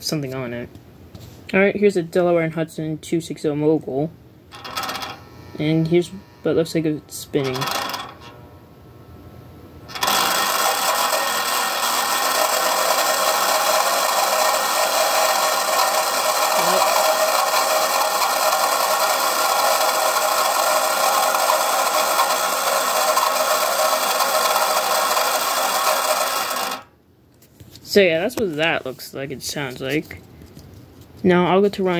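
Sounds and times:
model turntable motor rattling: 4.5s - 5.2s, 7.4s - 8.3s, 9.9s - 26.9s.

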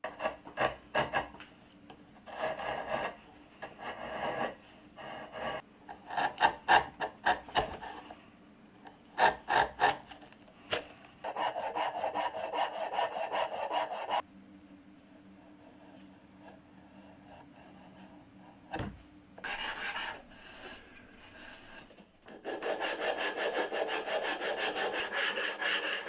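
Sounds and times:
chisel scraping wood: 0.0s - 1.4s, 2.2s - 8.0s, 9.2s - 14.2s, 19.4s - 26.0s
faint low hum: 14.2s - 22.8s.

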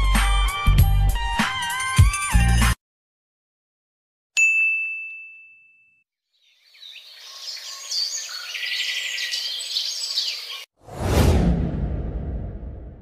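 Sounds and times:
ding chime: 4.4s - 6.1s
birds chirping and singing: 6.3s - 10.7s.

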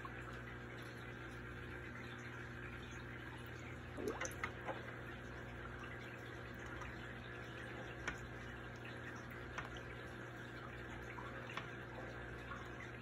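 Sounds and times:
aquarium water trickling: 0.0s - 13.0s
faint low hum: 0.0s - 13.0s
water drips: 0.0s - 13.0s.

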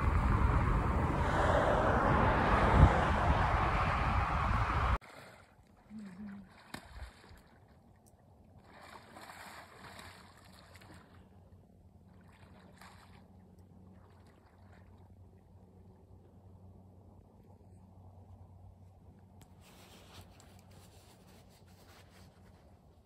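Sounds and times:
wind: 0.0s - 23.0s
water lapping: 5.0s - 15.9s
low steady hum: 5.6s - 23.0s.

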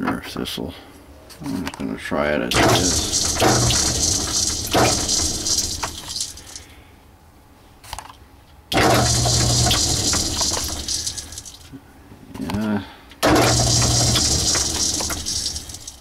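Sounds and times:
metal lathe running: 2.5s - 6.4s, 8.8s - 11.4s, 13.2s - 15.9s.

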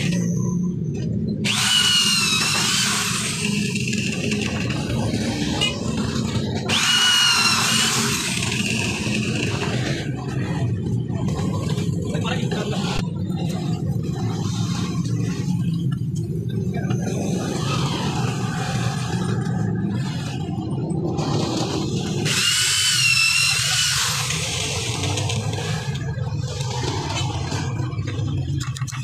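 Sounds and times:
electric drill whining: 1.4s - 4.7s, 6.7s - 9.8s, 22.2s - 25.9s
steady low rumble: 7.7s - 22.4s, 24.0s - 29.0s.

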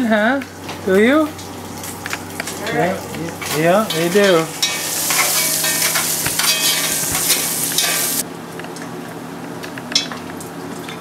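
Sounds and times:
bacon sizzling in fat: 0.4s - 8.2s.

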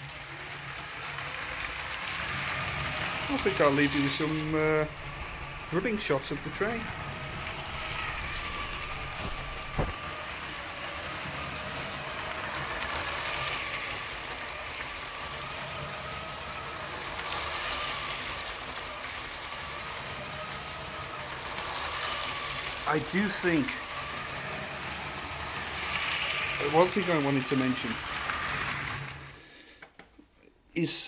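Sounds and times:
wheels rattling on track: 0.0s - 29.1s
toy train motor whine: 0.0s - 29.6s.

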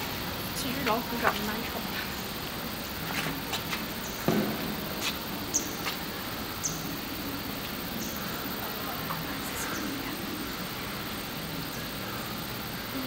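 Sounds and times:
steady background hum: 0.0s - 13.0s
high bird chirps: 5.5s - 5.8s, 6.6s - 6.9s.

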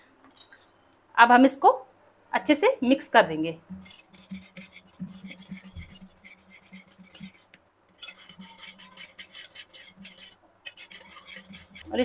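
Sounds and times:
wire whisk scraping steel bowl: 3.8s - 12.0s.

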